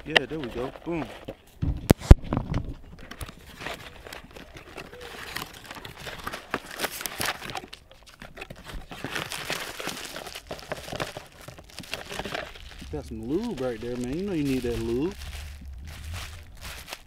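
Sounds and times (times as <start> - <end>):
paper and cardboard rustling: 0.0 - 17.0.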